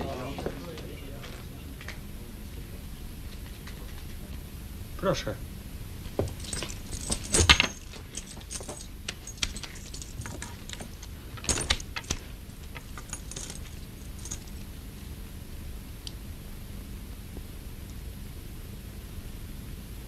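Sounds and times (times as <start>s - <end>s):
film soundtrack hiss: 0.0s - 20.0s
metallic jingles: 6.1s - 14.8s.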